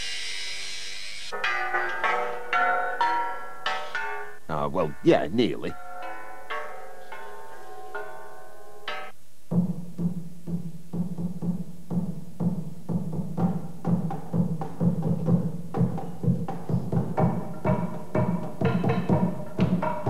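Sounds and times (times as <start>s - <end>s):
ringing pitched notes: 0.6s - 9.2s
percussion strikes: 1.3s - 20.0s
barrel drum beaten with mallet: 9.5s - 20.0s.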